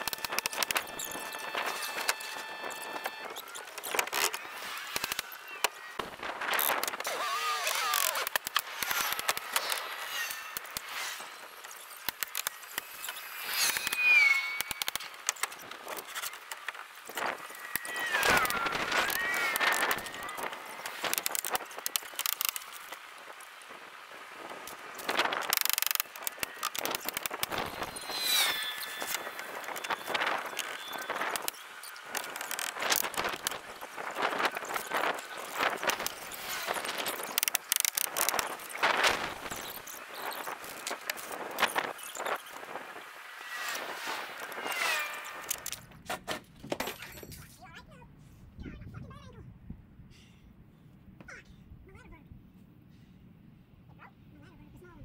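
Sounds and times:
high squeaky warbling: 0:13.0 - 0:16.4, 0:17.4 - 0:21.0, 0:26.2 - 0:31.6
rapid clicks: 0:24.6 - 0:27.9.

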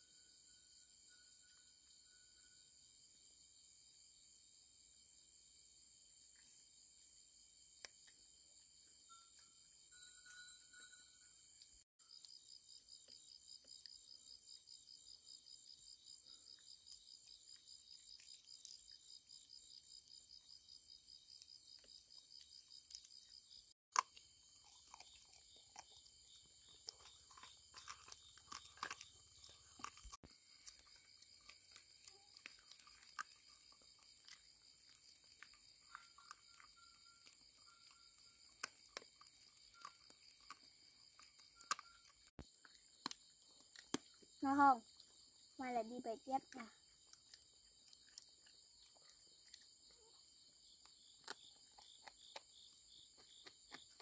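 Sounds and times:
insect chorus chirring: 0:00.0 - 0:54.0
sharp crunches and clicks: 0:20.8 - 0:44.4, 0:46.4 - 0:50.1, 0:50.7 - 0:54.0.

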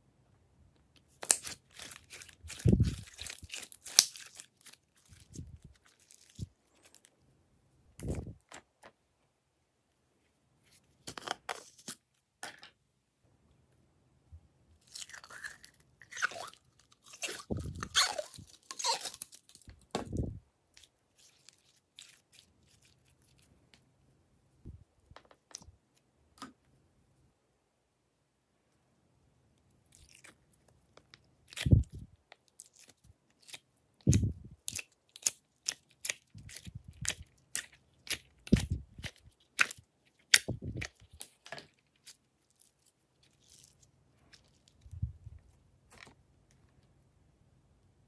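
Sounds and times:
slime squishing and crackling: 0:01.1 - 0:07.1, 0:14.8 - 0:20.0, 0:31.0 - 0:46.1.

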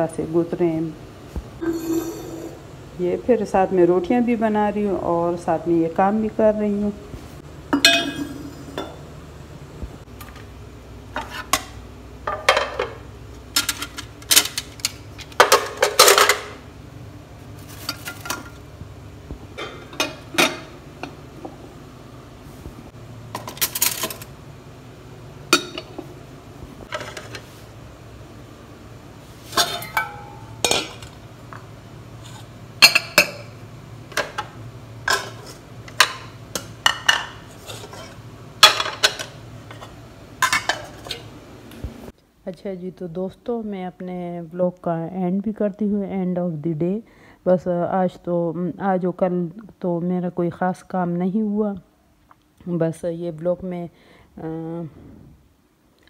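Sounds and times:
faint steady hum: 0:00.0 - 0:56.0
dishes clinking and clattering: 0:01.6 - 0:02.7, 0:07.7 - 0:09.0, 0:12.3 - 0:13.0, 0:15.4 - 0:16.6, 0:19.6 - 0:21.2, 0:25.5 - 0:26.1, 0:29.5 - 0:31.2, 0:32.8 - 0:41.3.

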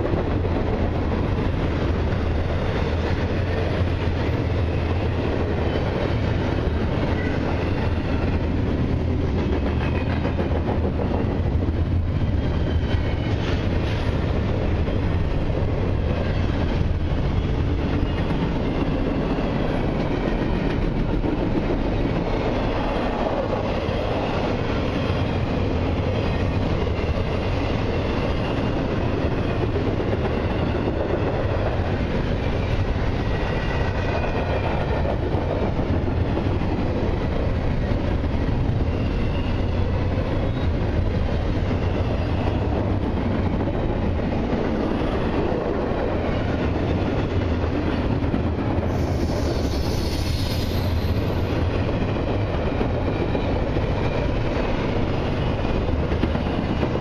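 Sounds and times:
freight train rumble: 0:00.0 - 0:57.0
faint high squeal: 0:48.9 - 0:51.5.

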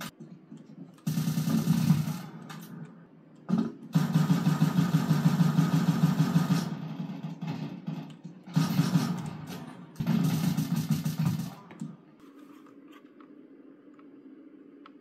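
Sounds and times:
low steady hum: 0:00.0 - 0:15.0
video game gunfire: 0:00.9 - 0:02.8, 0:03.5 - 0:12.0.

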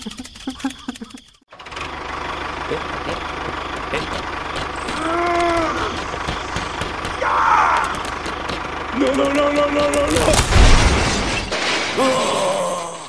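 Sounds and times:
held voice-like tones: 0:04.8 - 0:06.1
crash with deep boom: 0:10.3 - 0:12.2.

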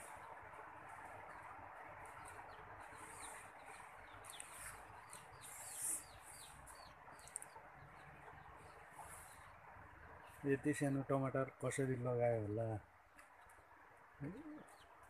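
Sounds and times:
faint outdoor hiss: 0:00.0 - 0:15.0
small bird chirping: 0:02.1 - 0:09.6, 0:14.2 - 0:15.0.

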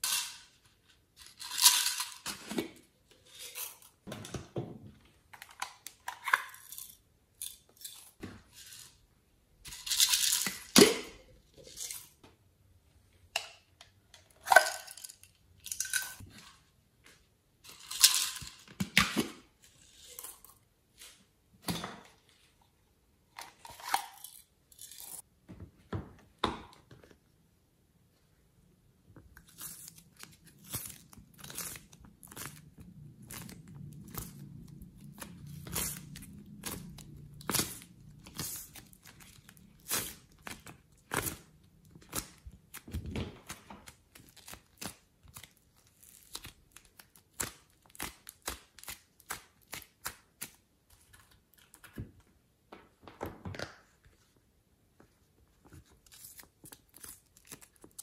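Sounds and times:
plastic containers crinkling and clicking: 0:04.1 - 0:06.9.

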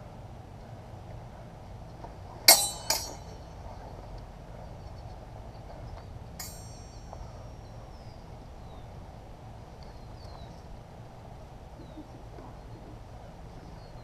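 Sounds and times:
outdoor ambient noise: 0:00.0 - 0:14.0
steel sword ringing: 0:02.5 - 0:03.5, 0:06.4 - 0:07.6.

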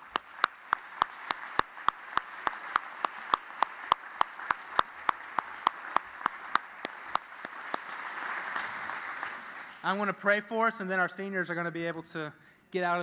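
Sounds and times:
close hands clapping loudly: 0:00.0 - 0:10.0
crowd applauding: 0:00.0 - 0:10.0.

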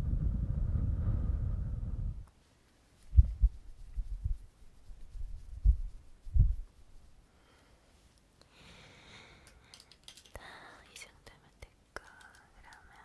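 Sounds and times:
faint breathing: 0:00.0 - 0:02.2, 0:07.2 - 0:11.0
soft low thumps: 0:03.1 - 0:04.4.

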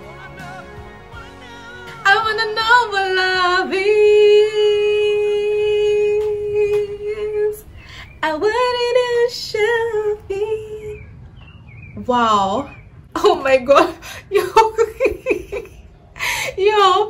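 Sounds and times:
woman singing loudly: 0:01.2 - 0:11.0.

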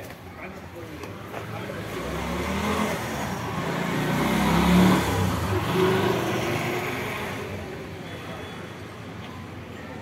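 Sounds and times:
vehicle passing by: 0:01.7 - 0:07.6.

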